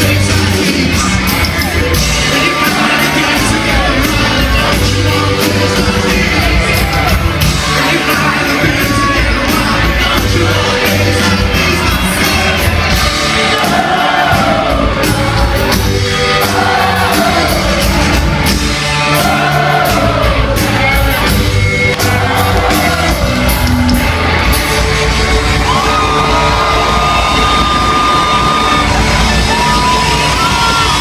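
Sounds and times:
person singing: 0.0s - 23.8s
crowd whooping: 0.0s - 31.0s
live rock band playing: 0.0s - 31.0s.

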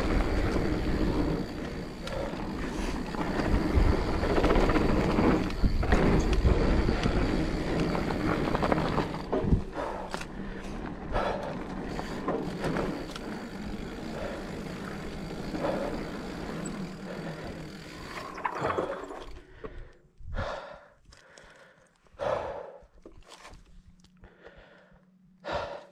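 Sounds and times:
rider breathing hard: 0.0s - 7.7s, 9.4s - 18.2s, 19.3s - 23.0s, 24.1s - 25.9s
bike rattling and knocking: 0.0s - 19.0s
bike tyre and wind noise: 0.0s - 22.6s.

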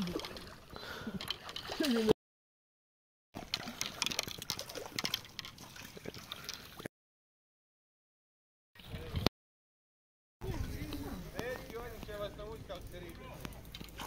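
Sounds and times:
fish thrashing in water: 3.4s - 6.9s.

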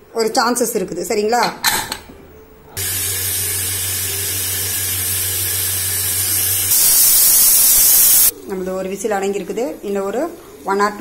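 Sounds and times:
pressure cooker whistling: 2.8s - 8.3s.

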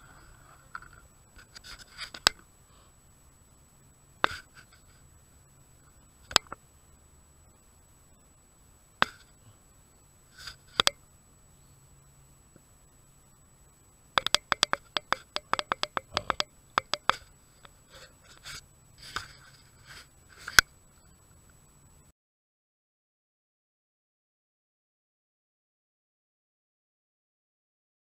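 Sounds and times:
faint electronic hum: 0.0s - 22.1s.

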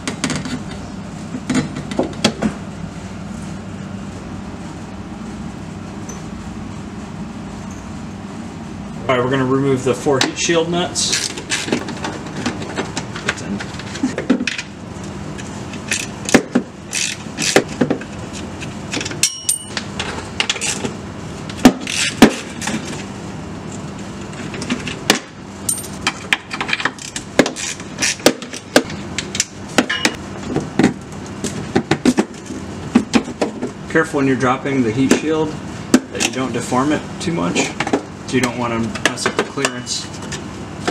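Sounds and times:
metallic clinks and knocks: 19.2s - 19.8s, 25.7s - 26.1s.

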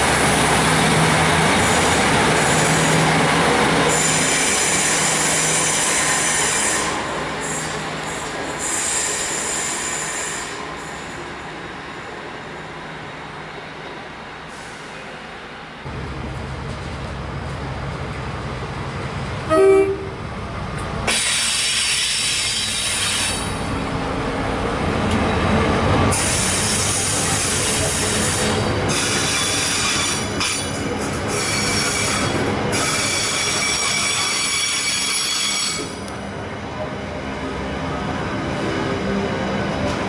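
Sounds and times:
diesel locomotive engine rumbling: 0.0s - 40.0s
train horn blast: 19.5s - 20.2s
wheel squeal: 31.3s - 36.0s.

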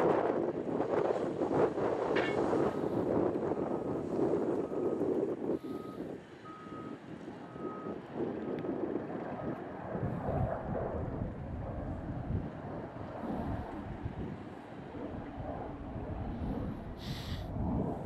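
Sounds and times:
reversing alarm beeping: 5.6s - 8.0s.

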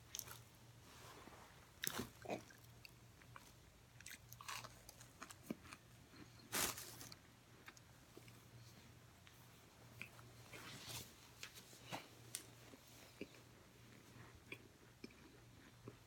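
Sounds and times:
crunching and chewing: 0.0s - 0.6s, 1.8s - 8.7s, 13.0s - 16.0s.

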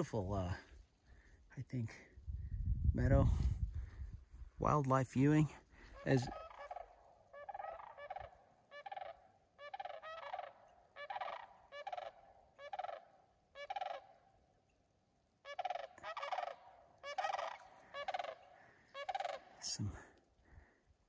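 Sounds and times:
cranes rattling calls: 5.8s - 14.2s, 15.4s - 19.7s.

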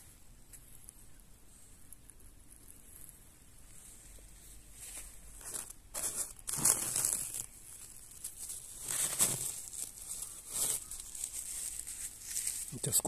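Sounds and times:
papery crinkling and rustling: 4.8s - 13.0s.

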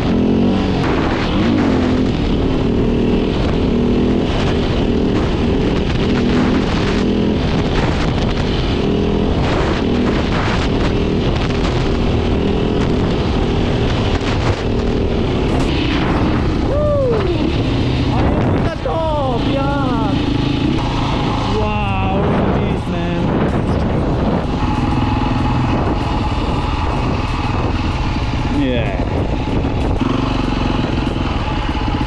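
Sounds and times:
dirt bike engine revving: 0.0s - 32.0s
wind noise on microphone: 0.0s - 32.0s.

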